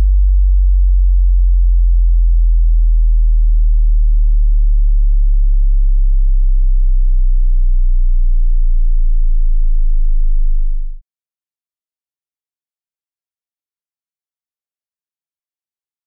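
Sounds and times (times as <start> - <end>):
deep bass sine tones: 0.0 - 11.0.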